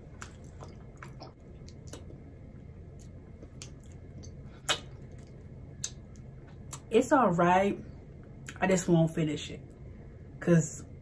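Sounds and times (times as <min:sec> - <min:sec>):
wet mouth clicks and smacks: 0:00.2 - 0:02.2, 0:03.0 - 0:06.9.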